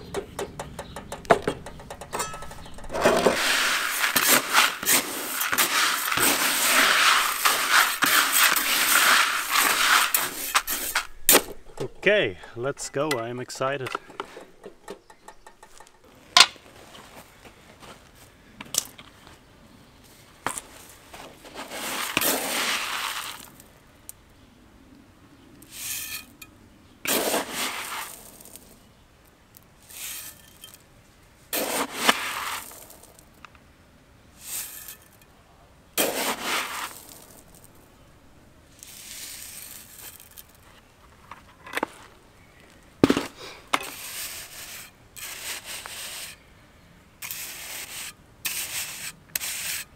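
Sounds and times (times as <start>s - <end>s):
metal trowel scraping gravel: 1.6s - 17.0s, 20.5s - 23.7s, 25.7s - 26.5s, 27.1s - 28.9s, 29.8s - 30.9s, 31.5s - 33.4s, 34.4s - 35.2s, 36.0s - 37.9s, 38.7s - 40.7s, 43.0s - 46.5s, 47.2s - 49.9s.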